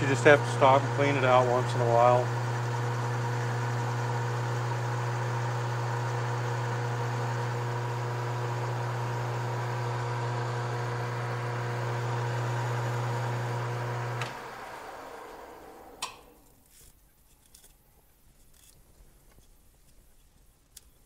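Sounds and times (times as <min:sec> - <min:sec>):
metal lathe running: 0:00.0 - 0:16.2.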